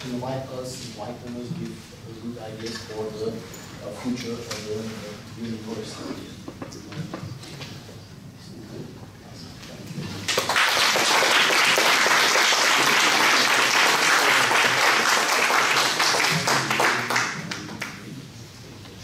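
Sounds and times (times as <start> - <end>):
small audience applauding: 10.2 - 18.1.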